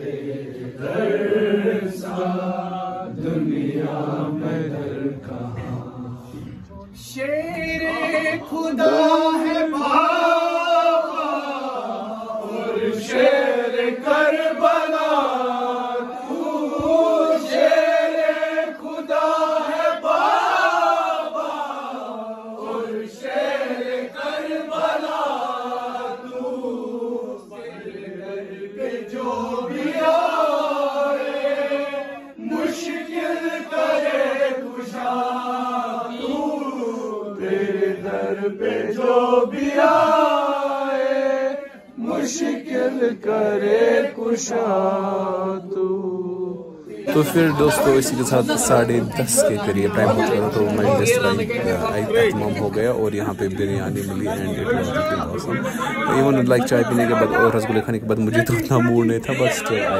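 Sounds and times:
man chanting religious poem: 1.0s - 15.3s, 47.1s - 59.9s.

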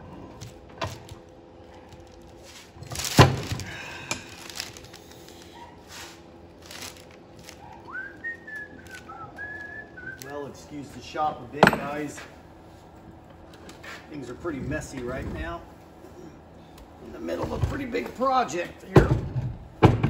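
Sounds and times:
man whistling: 7.9s - 10.4s
loud metal thunk: 11.6s - 12.2s.

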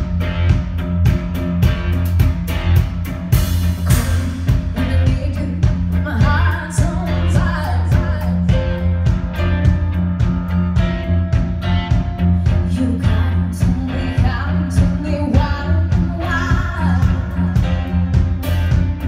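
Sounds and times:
live rock band playing: 0.0s - 19.0s
woman singing: 3.9s - 9.0s, 12.4s - 18.2s.

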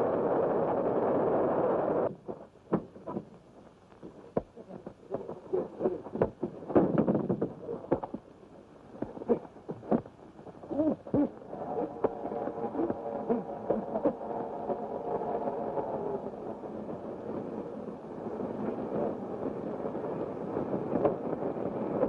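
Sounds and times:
train running: 9.0s - 22.0s.

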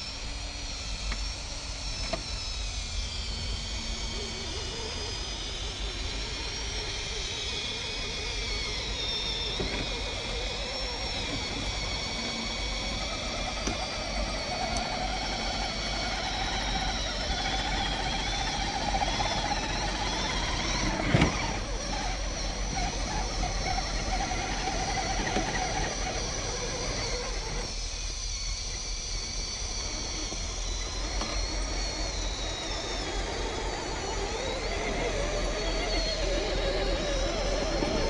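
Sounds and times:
electric motors whining: 0.0s - 38.0s.

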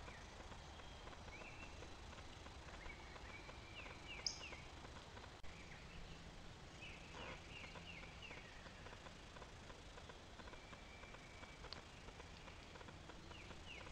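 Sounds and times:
songbird calls: 0.0s - 4.8s, 5.5s - 9.1s, 10.0s - 13.9s.

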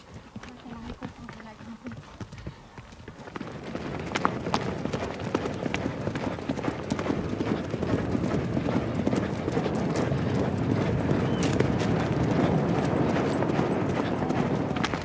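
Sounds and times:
horses galloping over grass: 0.0s - 15.0s
steady rushing noise: 3.3s - 15.0s.

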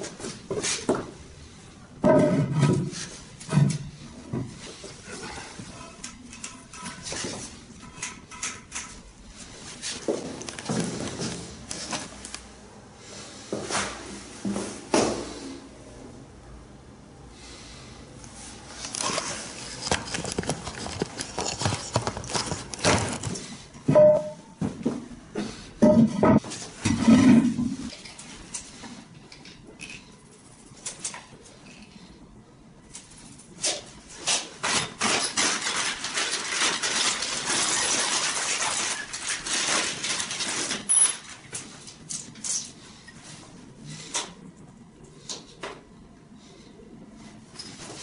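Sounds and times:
rattling and rustling of parts: 2.0s - 12.4s, 18.7s - 23.9s, 32.9s - 43.2s.

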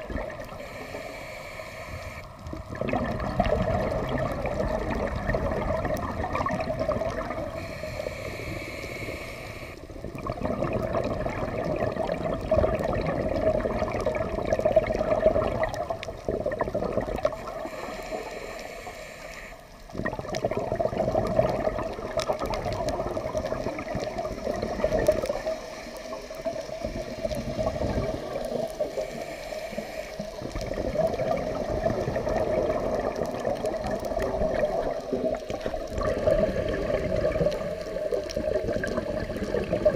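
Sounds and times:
exhaled bubbles gurgling underwater: 0.0s - 39.9s
diver inhaling through regulator: 0.4s - 2.4s, 7.4s - 9.9s, 17.3s - 19.8s, 28.7s - 30.6s.

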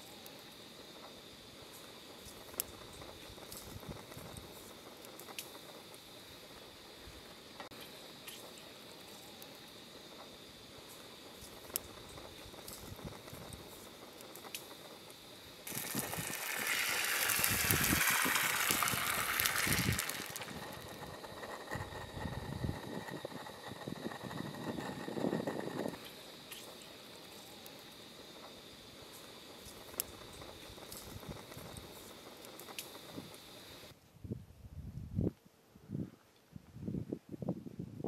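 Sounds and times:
low steady hiss: 0.0s - 38.0s
beans sizzling in frying pan: 7.7s - 22.0s.

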